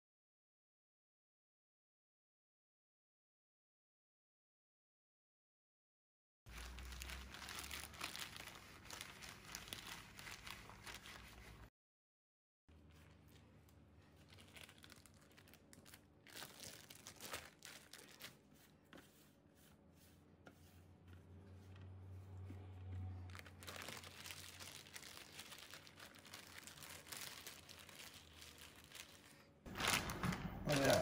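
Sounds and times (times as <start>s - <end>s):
plastic bags crinkling: 6.5s - 11.7s, 12.8s - 18.5s, 23.2s - 31.0s.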